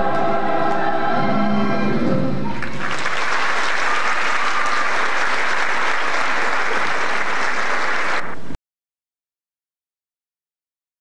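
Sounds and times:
audience applauding: 2.6 - 8.4.

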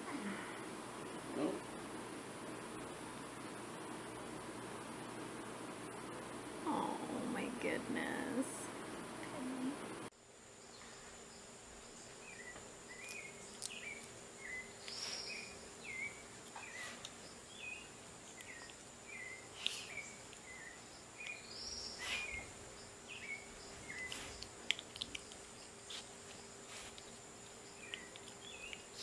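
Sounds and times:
steady low hum: 0.0 - 29.0
short chirping calls: 12.3 - 24.5.

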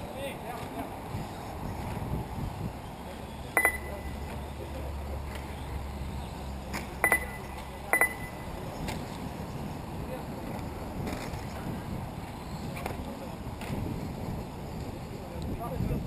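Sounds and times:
sharp metallic clinks: 3.6 - 4.3, 7.0 - 8.6.

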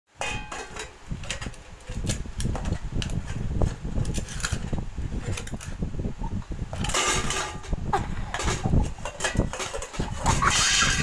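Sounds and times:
metal pots and plates clanking: 0.2 - 1.6, 6.7 - 11.0.

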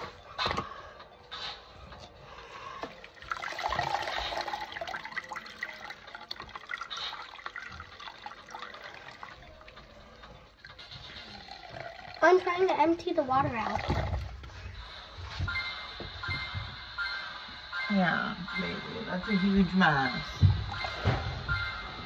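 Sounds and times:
water splashing and dripping in sink: 2.8 - 14.6.

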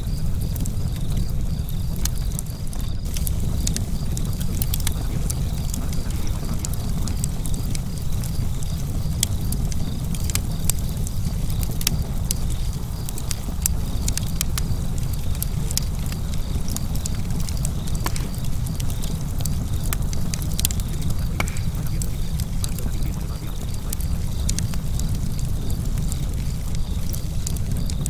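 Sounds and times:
fire crackling: 0.0 - 28.0
low rumble: 0.0 - 28.0.

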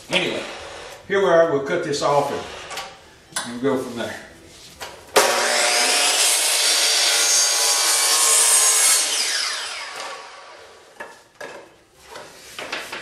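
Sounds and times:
miter saw cutting wood: 0.1 - 1.0, 5.2 - 10.8.

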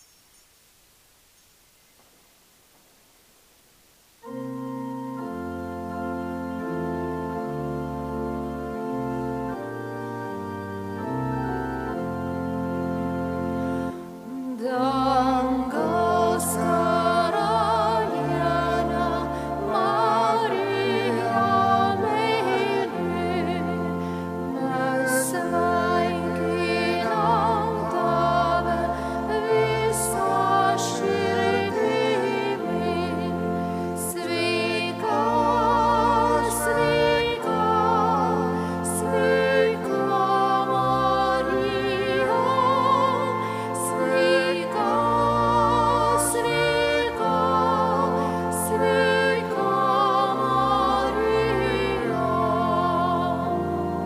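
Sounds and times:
church organ chords: 4.2 - 54.0
singing with strong vibrato: 14.1 - 54.0.

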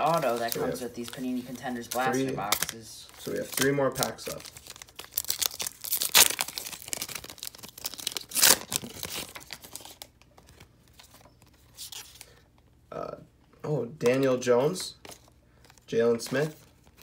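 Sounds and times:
foil wrapper rustling: 0.0 - 12.4
foil wrapper ripping: 0.1 - 10.1.

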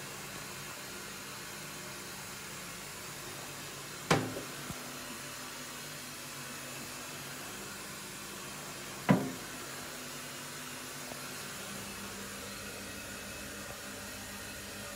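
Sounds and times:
toilet lid knocking against cistern: 4.1 - 4.5, 9.1 - 9.4.

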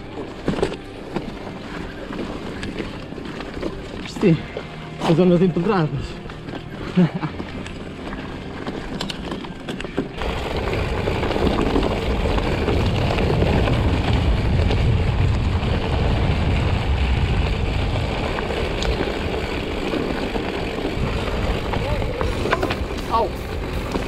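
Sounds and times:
bike rattling: 0.0 - 24.0
bike tyres rumbling: 0.0 - 24.0
wind buffeting microphone: 10.2 - 24.0.

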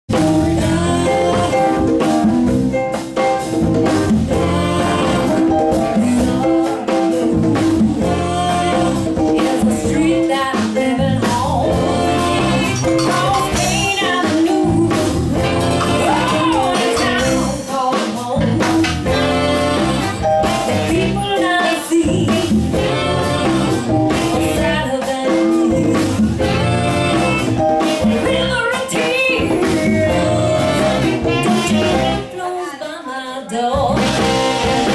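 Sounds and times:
electric bass: 0.1 - 17.7, 18.4 - 21.4, 22.0 - 25.0, 25.7 - 32.3, 33.8 - 34.9
keyboards: 0.1 - 33.0, 33.7 - 34.9
congas: 0.1 - 34.9
drum kit: 0.1 - 34.9
person singing: 0.4 - 2.3, 4.3 - 34.9
saxophones: 4.3 - 5.9, 11.6 - 17.6, 19.0 - 21.5, 22.7 - 24.5, 26.4 - 28.5, 29.9 - 32.4.

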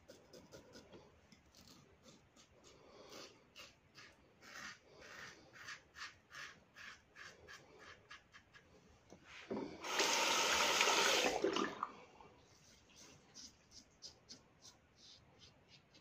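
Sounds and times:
tap running water: 9.5 - 11.9.

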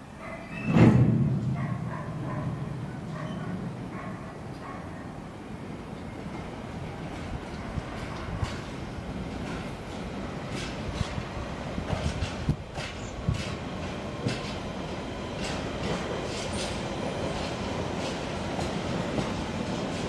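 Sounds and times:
freight train rolling: 0.0 - 20.0
wheels clicking over rail joints: 5.9 - 14.7.

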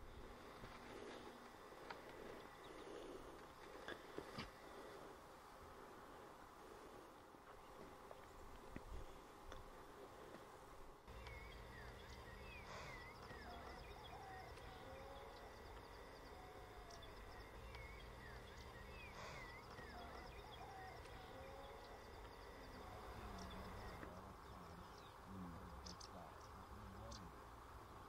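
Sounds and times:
low steady rumble: 0.0 - 28.0
birds whistling calls: 11.1 - 25.2
insects trilling: 11.1 - 27.4.

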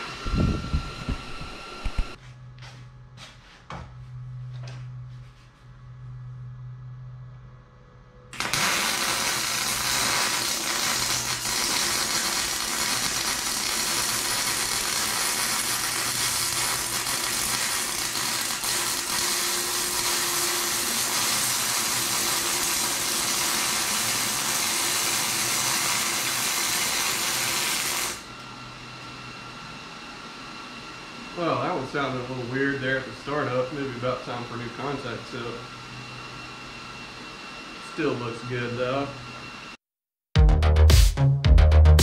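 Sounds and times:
welder arc buzzing: 0.0 - 3.1, 8.3 - 29.4.

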